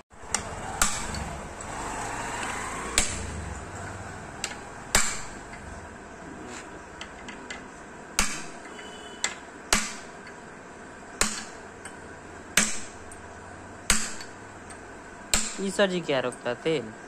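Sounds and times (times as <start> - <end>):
hammer striking metal: 0.2 - 1.6, 2.4 - 5.7, 8.2 - 10.4, 11.2 - 13.2, 13.9 - 15.8.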